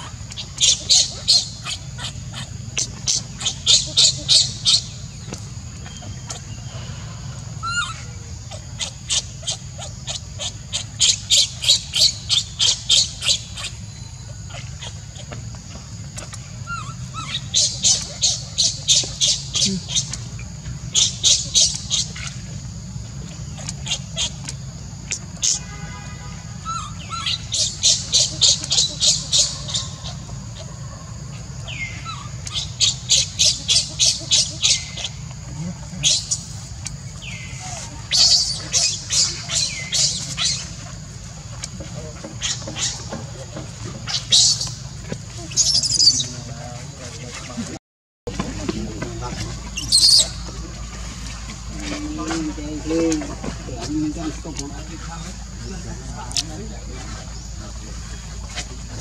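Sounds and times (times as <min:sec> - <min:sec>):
baby monkey crying: 0:00.0 - 0:04.8, 0:07.6 - 0:13.8, 0:16.2 - 0:20.2, 0:26.6 - 0:30.7, 0:31.6 - 0:36.4
baby macaque crying shrill squeals: 0:07.6 - 0:08.0.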